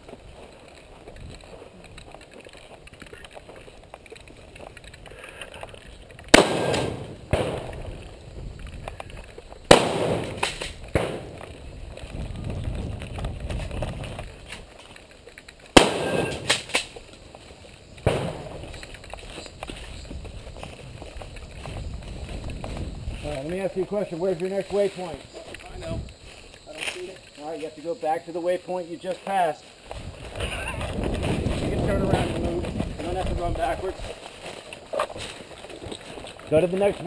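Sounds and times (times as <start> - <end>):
shotgun shots with echo: 6.3 - 7.7, 9.7 - 11.4, 15.8 - 16.7, 18.0 - 18.5.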